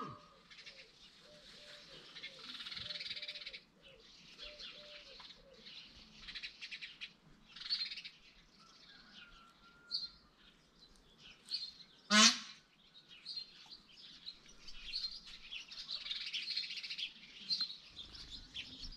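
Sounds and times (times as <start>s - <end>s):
birds chirping and twittering: 0.0s - 18.9s
loud harsh bird call: 12.1s - 12.7s.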